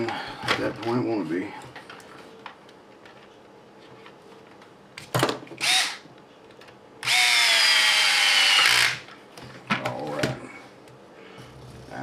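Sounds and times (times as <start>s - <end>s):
drill motor whine: 5.6s - 6.0s, 7.0s - 9.0s.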